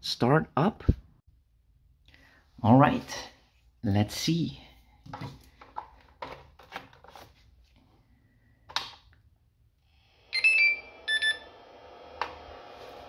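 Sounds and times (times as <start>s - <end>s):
steady whir: 9.9s - 13.0s
charger beeps: 10.3s - 11.5s.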